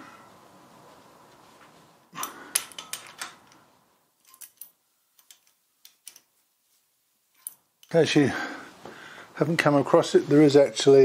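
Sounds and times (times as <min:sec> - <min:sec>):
spanner clinking against bolts: 0:02.2 - 0:06.3, 0:07.3 - 0:08.0.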